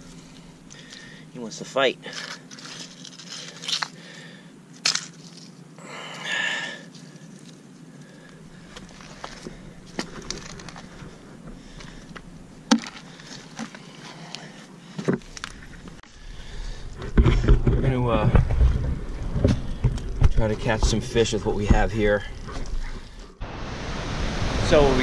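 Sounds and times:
scraping rustle: 2.0 - 5.7, 12.9 - 23.4
footsteps on wet rocks: 6.9 - 14.2.

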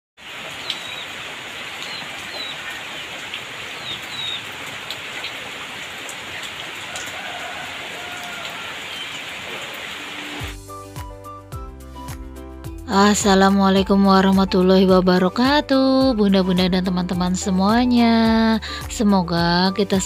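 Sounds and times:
heavy rain on foliage: 0.2 - 10.6
bird chirps: 0.6 - 1.2, 1.8 - 3.1, 3.7 - 4.5.

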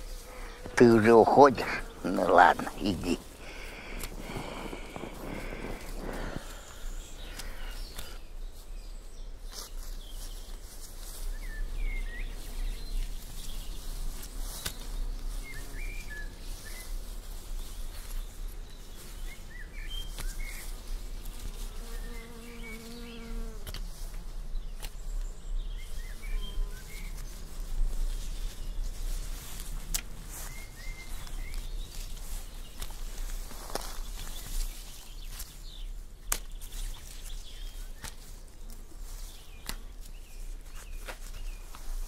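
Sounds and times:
flying insect buzzing: 0.0 - 8.2, 20.3 - 28.1.

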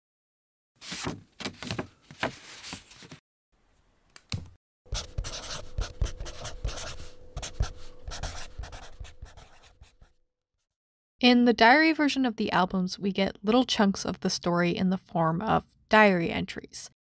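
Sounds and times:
faint steady hum: 4.9 - 9.7
pen scratching on paper: 4.9 - 10.1.

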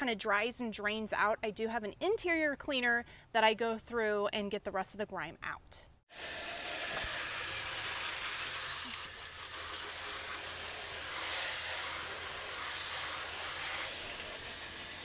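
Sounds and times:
hose water spraying on floor: 6.1 - 15.0.

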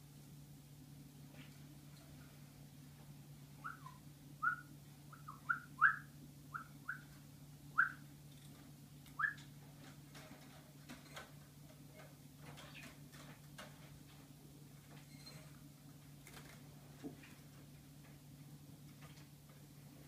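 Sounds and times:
sparrow chirping: 3.6 - 7.2.

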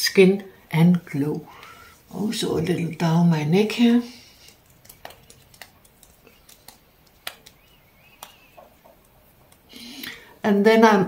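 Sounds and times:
fingertips patting skin: 4.1 - 10.1.

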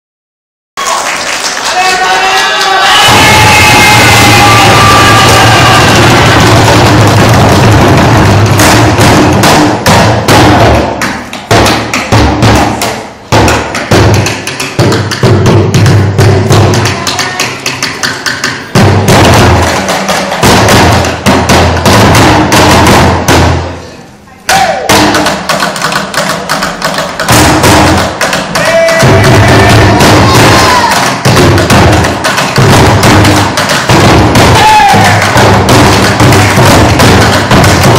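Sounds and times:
sticks drumming on plastic bins: 6.7 - 23.4, 24.5 - 37.9.

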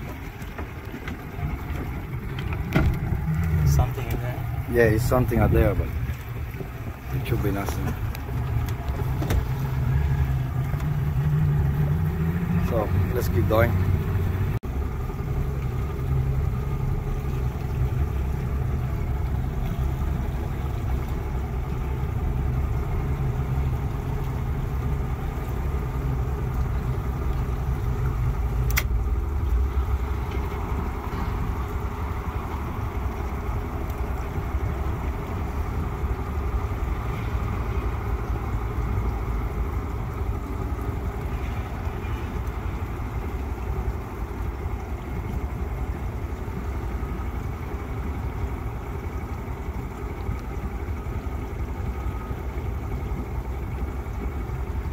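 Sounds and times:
boat engine running: 0.0 - 54.9
sharp click: 28.7 - 28.9.

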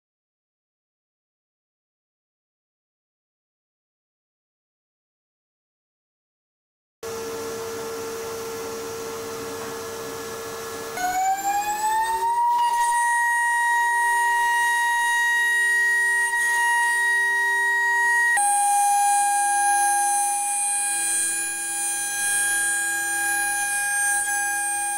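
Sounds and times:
milling spindle whining: 10.4 - 24.9.

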